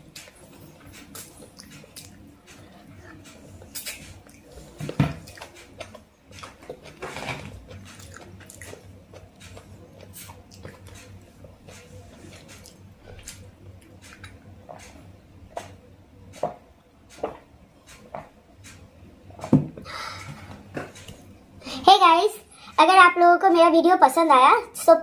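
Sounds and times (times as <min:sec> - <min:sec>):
wet mouth clicks: 0:01.0 - 0:04.4, 0:14.0 - 0:15.0.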